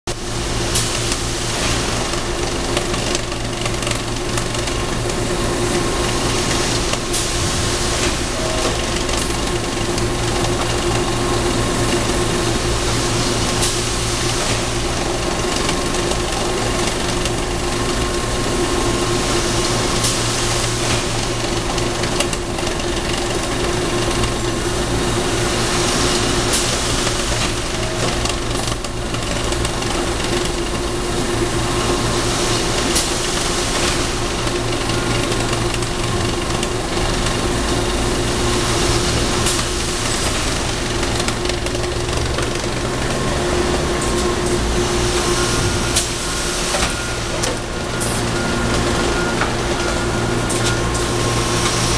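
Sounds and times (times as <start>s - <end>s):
machinery humming: 0.1s - 51.9s.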